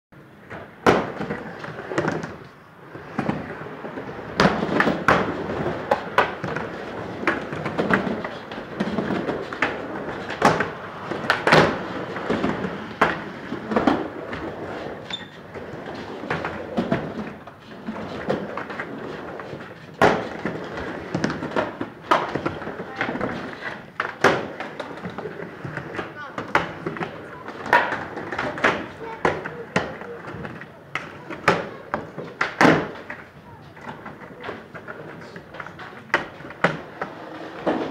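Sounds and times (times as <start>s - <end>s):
skateboard wheels rolling on wood: 0.2s - 37.9s
skateboards clacking on wood: 0.3s - 37.9s.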